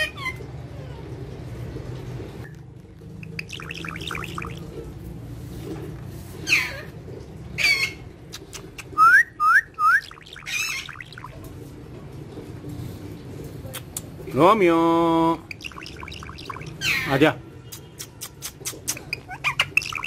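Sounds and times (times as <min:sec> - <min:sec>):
parakeet chirping and squawking: 0:03.1 - 0:04.8, 0:06.3 - 0:09.0, 0:09.8 - 0:11.5, 0:15.3 - 0:17.2, 0:18.5 - 0:20.0
parakeet rising squeaks: 0:03.2 - 0:04.6, 0:09.0 - 0:11.4, 0:15.4 - 0:17.2, 0:18.9 - 0:20.0.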